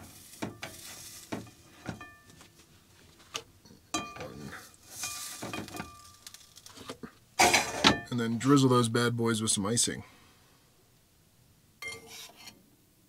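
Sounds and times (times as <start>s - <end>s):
metal utensil clinking on pan and plate: 11.8s - 12.6s.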